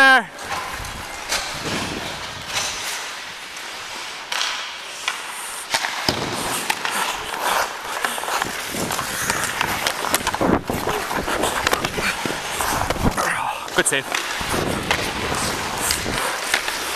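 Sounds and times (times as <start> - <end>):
clicks of sticks and puck: 0.4 - 16.9
ice skates scraping on ice: 0.4 - 16.9.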